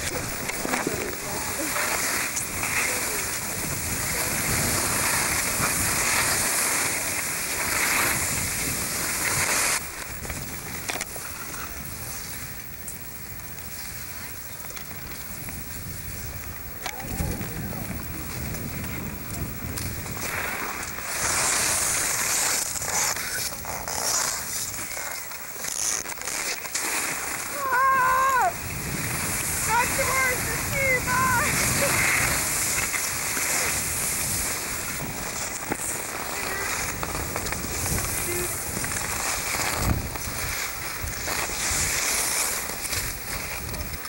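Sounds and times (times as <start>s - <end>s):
wind buffeting microphone: 0.0s - 12.6s, 13.8s - 22.3s, 27.5s - 44.0s
sliding over packed snow: 0.0s - 44.0s.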